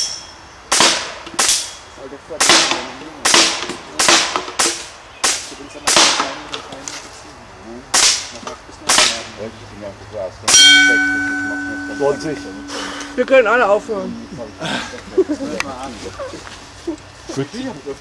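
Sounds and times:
air gun shots: 0:00.7 - 0:01.8, 0:02.4 - 0:06.4, 0:07.9 - 0:08.3, 0:08.9 - 0:09.3
metal gong ringing: 0:10.5 - 0:15.4.

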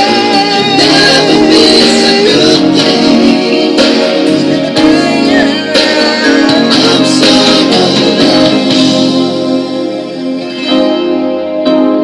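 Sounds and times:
guitar over a steady beat: 0:00.0 - 0:12.0.

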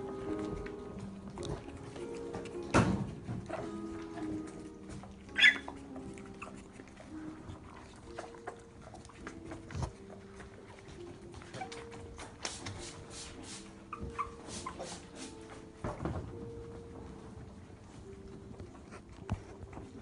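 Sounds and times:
puppies scuffling on tiles: 0:00.0 - 0:20.0
paw and claw taps: 0:00.3 - 0:12.8
high puppy yelp: 0:03.4 - 0:09.3, 0:13.8 - 0:15.2.

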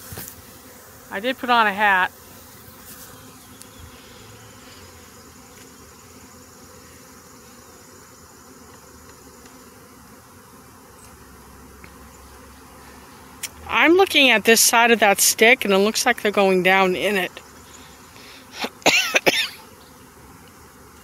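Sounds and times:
bee swarm buzzing: 0:00.0 - 0:21.0.

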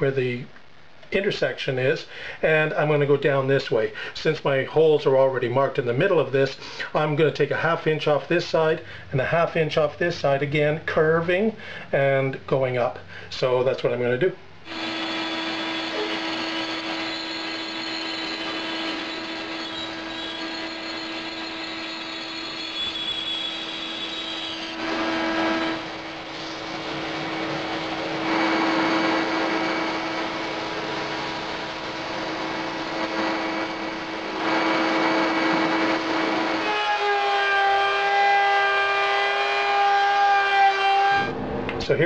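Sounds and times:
bandsaw cutting wood: 0:14.6 - 0:38.2
router whining: 0:14.6 - 0:41.3
sander humming: 0:14.6 - 0:41.4.

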